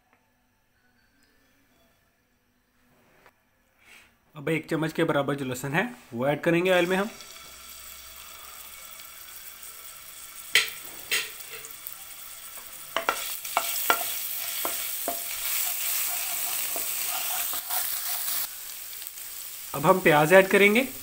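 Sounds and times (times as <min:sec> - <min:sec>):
garlic sizzling in oil: 0:06.6 - 0:21.0
spoon scraping pan: 0:10.5 - 0:11.9, 0:12.6 - 0:18.5
wooden spoon knocking on pan: 0:13.0 - 0:15.4.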